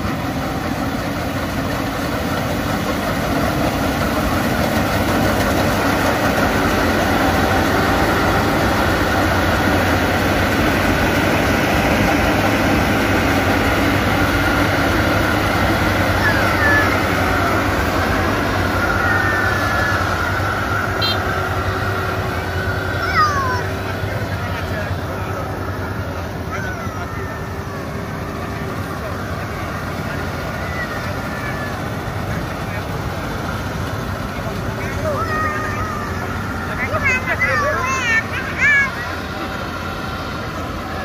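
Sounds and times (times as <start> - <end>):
combine harvester drone: 0.0 - 41.0.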